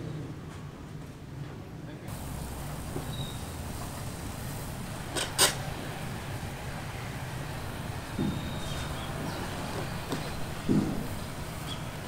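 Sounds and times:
sharp knocks: 0:08.2 - 0:08.9, 0:10.1 - 0:11.2
dull thump: 0:10.1 - 0:11.2.

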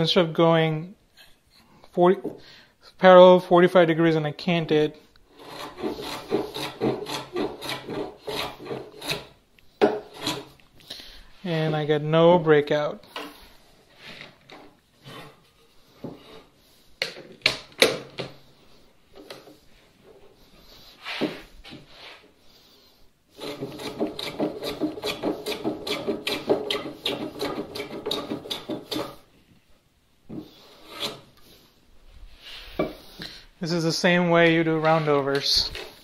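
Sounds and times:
hand plane cutting wood: 0:05.3 - 0:10.6, 0:23.4 - 0:29.3, 0:30.4 - 0:31.4.

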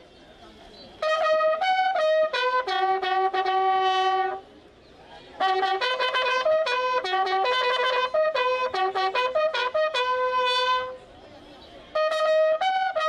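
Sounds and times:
bugles playing ceremonial call: 0:01.0 - 0:04.4, 0:05.4 - 0:11.1, 0:11.9 - 0:13.0.

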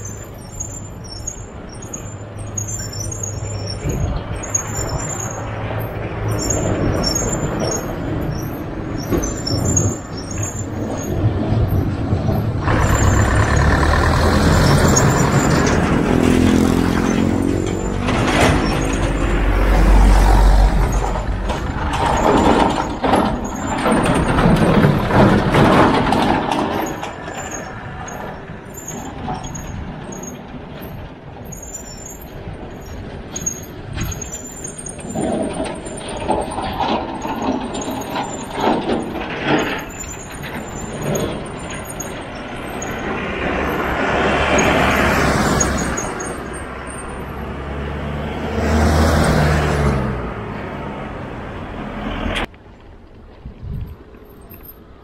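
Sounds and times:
bus engine passing: 0:00.0 - 0:52.8
wind and road noise: 0:00.0 - 0:55.0.

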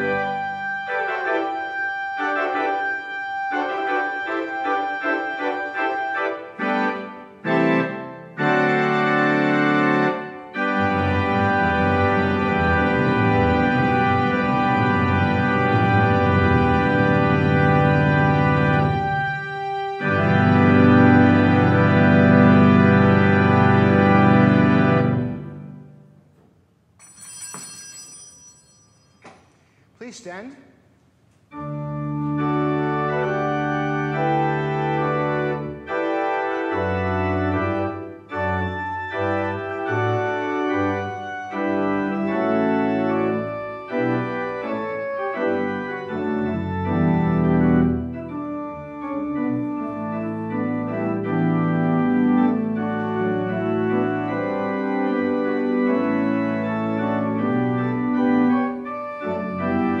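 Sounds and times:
church organ playing: 0:00.0 - 0:26.2, 0:27.0 - 0:29.8, 0:31.5 - 1:00.0.

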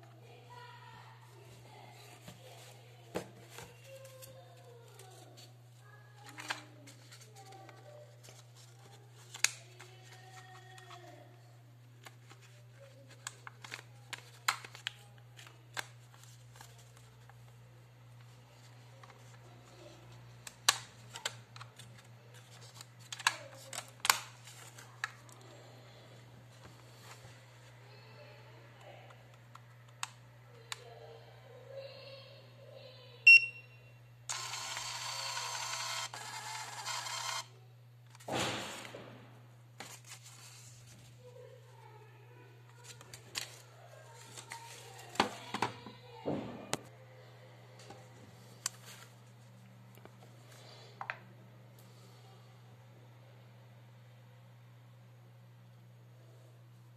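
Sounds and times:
paper rustling: 0:01.4 - 0:11.2, 0:39.8 - 0:41.5, 0:42.7 - 0:45.6, 0:48.5 - 0:49.5
printer whirring buzz: 0:34.3 - 0:37.5.

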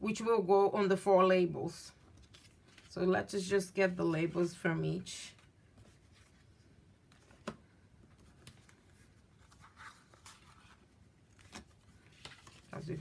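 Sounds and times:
paper rustling: 0:02.1 - 0:02.9, 0:05.3 - 0:13.0.

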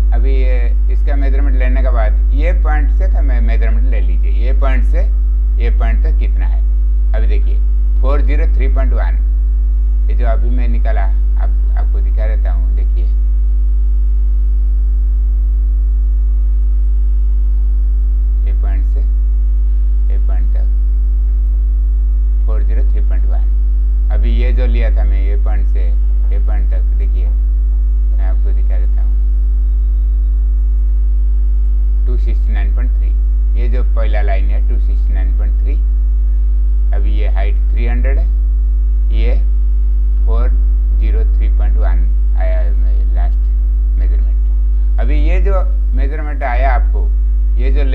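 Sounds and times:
electrical mains hum: 0:00.0 - 0:47.9
man speaking: 0:00.1 - 0:06.6, 0:07.2 - 0:09.2, 0:10.1 - 0:13.2, 0:18.5 - 0:19.1, 0:20.1 - 0:20.7, 0:22.5 - 0:23.5, 0:24.1 - 0:27.4, 0:28.2 - 0:29.2, 0:32.1 - 0:35.8, 0:36.9 - 0:38.3, 0:39.1 - 0:39.5, 0:40.2 - 0:47.9.

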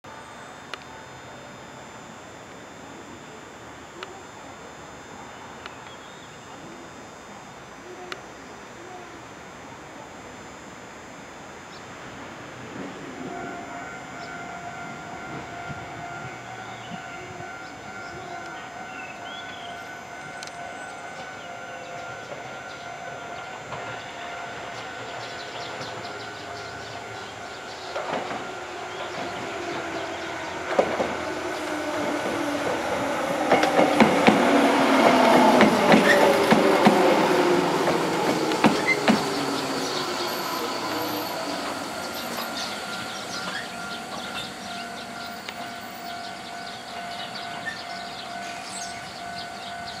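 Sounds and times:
train motor whine falling: 0:00.1 - 0:49.8
train wheels clacking over joints: 0:32.0 - 0:46.3.

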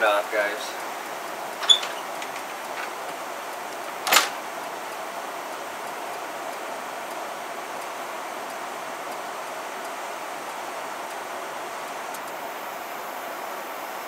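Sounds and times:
gas furnace burner hiss: 0:00.0 - 0:14.0
sharp click: 0:04.0 - 0:04.4.

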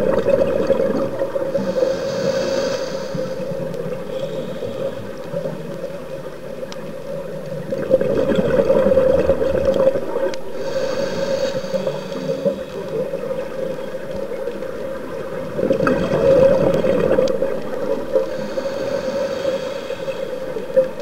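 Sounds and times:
exhaust bubbling underwater: 0:00.0 - 0:01.8, 0:07.8 - 0:13.5, 0:15.4 - 0:19.3
diver's regulator breathing hiss: 0:01.2 - 0:05.9, 0:10.2 - 0:21.0
steady low hum: 0:08.2 - 0:13.6, 0:16.0 - 0:21.0.

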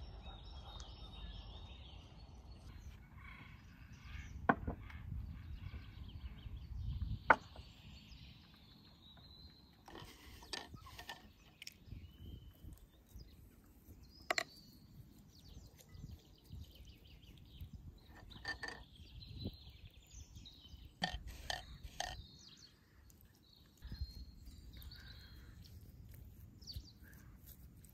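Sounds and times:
birds chirping: 0:00.0 - 0:27.9
utensil clinking against a bowl: 0:18.0 - 0:19.0.

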